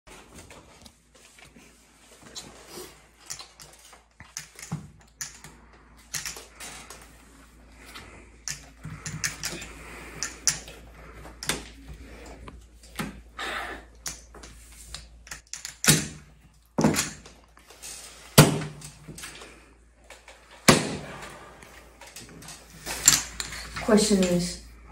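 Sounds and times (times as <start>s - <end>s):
poker chips clicking: 3.3s - 5.5s, 6.1s - 6.5s, 8.5s - 10.7s, 14.9s - 15.9s.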